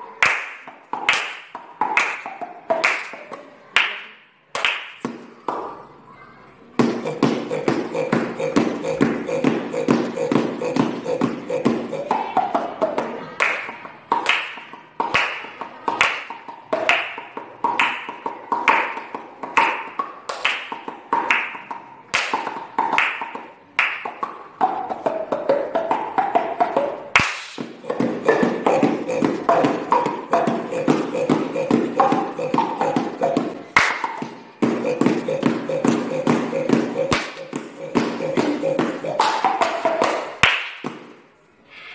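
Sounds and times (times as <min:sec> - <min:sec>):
hand claps: 0:00.2 - 0:05.8, 0:13.4 - 0:41.2
pitched mouth pops: 0:06.8 - 0:12.8, 0:26.7 - 0:41.1.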